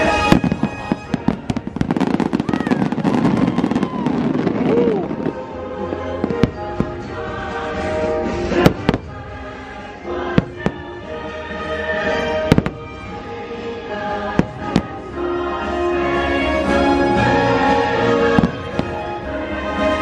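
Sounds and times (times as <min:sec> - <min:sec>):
fireworks bursting with bangs: 0:00.0 - 0:15.8, 0:16.7 - 0:20.0
orchestral music: 0:00.0 - 0:20.0.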